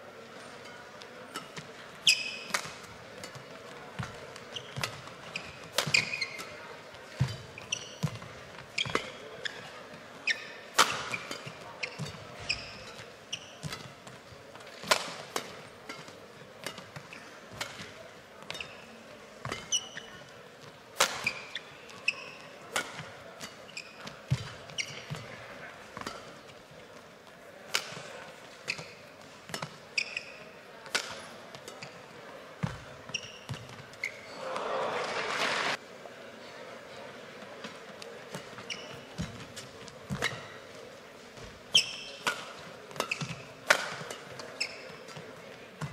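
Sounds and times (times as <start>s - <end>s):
racket hitting shuttlecock: 0.6s - 20.3s, 20.9s - 26.5s, 27.6s - 32.0s, 37.7s - 40.6s, 41.4s - 45.9s
shoes squeaking on floor: 1.4s - 14.4s, 16.7s - 26.5s, 27.9s - 30.6s, 31.5s - 34.8s, 38.3s - 40.7s, 41.4s - 45.9s.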